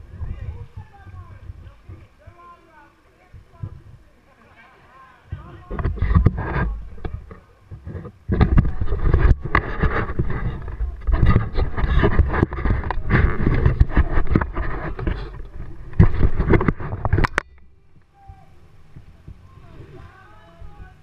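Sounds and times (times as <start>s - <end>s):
knocks and bumps: 5.3s - 17.6s.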